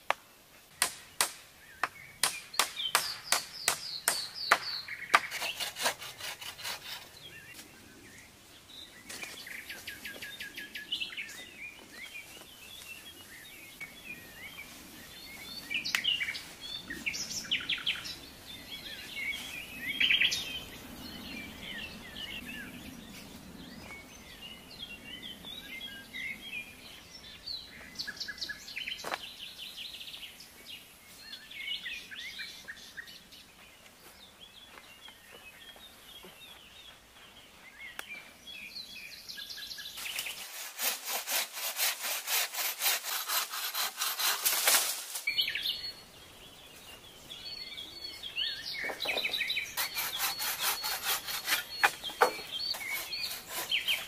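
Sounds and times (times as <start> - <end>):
birds singing and calling: 0.7 - 54.0
hatchet strikes on wood: 0.8 - 6.0.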